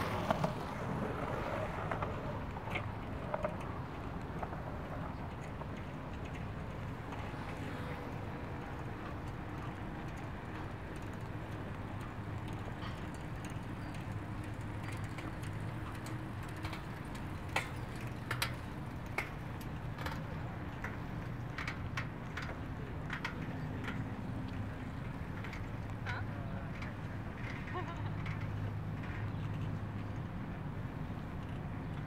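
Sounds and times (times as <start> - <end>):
bicycle rolling on paved path: 0.0 - 32.0.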